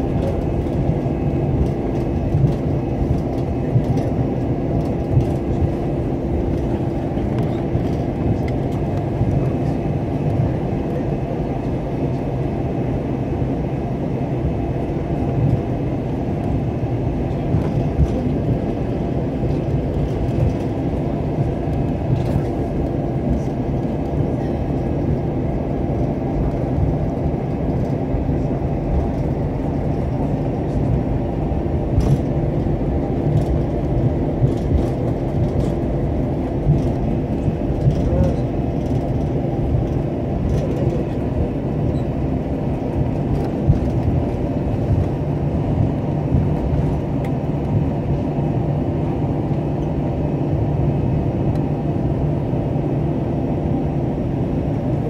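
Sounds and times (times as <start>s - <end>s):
aircraft engines idling rumble: 0.0s - 55.0s
steady hums: 0.0s - 55.0s.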